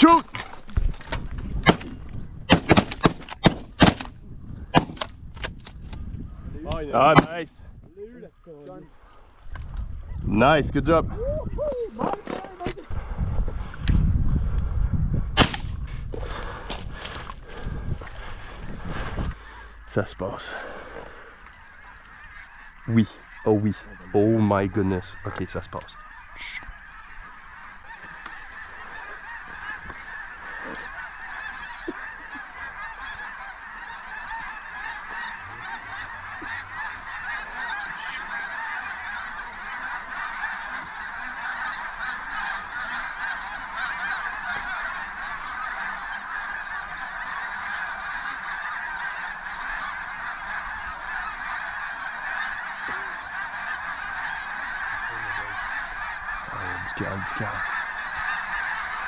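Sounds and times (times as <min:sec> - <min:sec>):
geese honking: 0:06.3 - 0:07.4, 0:16.2 - 0:59.0.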